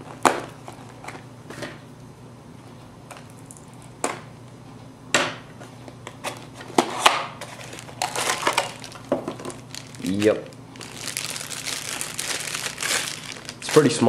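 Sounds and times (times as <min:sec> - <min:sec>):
plastic bag crinkling: 0:07.4 - 0:14.0.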